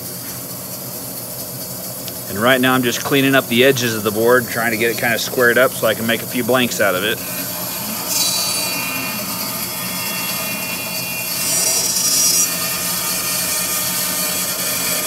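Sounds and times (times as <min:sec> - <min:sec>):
bandsaw motor hum: 0:00.0 - 0:15.0
saw blade hissing through wood: 0:03.2 - 0:15.0.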